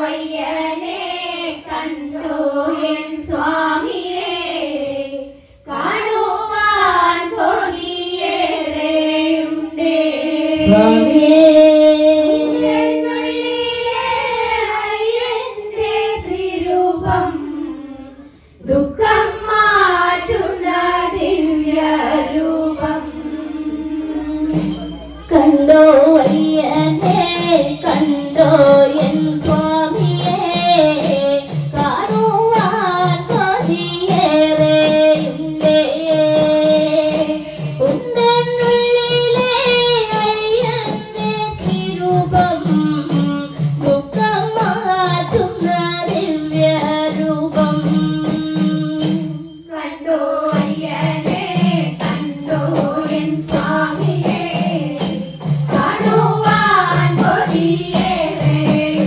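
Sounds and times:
women and girls singing: 0:00.0 - 0:59.0
tambourine: 0:06.6 - 0:11.4, 0:20.7 - 0:59.0
hand drums beating: 0:10.5 - 0:13.6, 0:24.3 - 0:49.6, 0:50.4 - 0:59.0.

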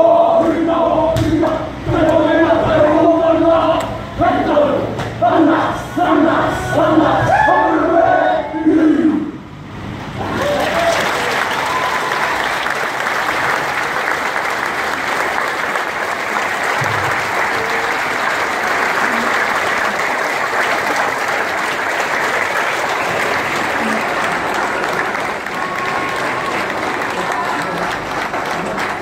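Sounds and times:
audience applause: 0:10.2 - 0:29.0.

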